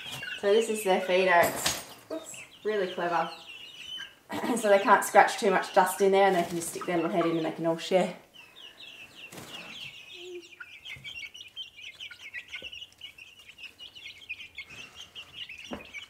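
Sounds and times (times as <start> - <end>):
chicks peeping: 0.0 - 16.0.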